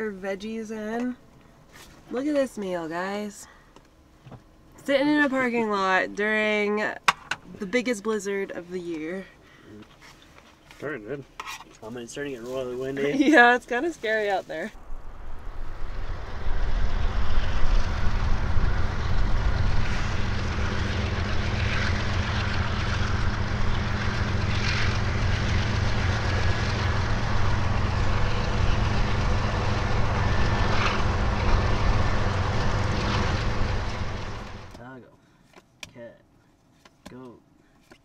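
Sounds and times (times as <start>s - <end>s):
blizzard wind blowing hard: 14.8s - 34.7s.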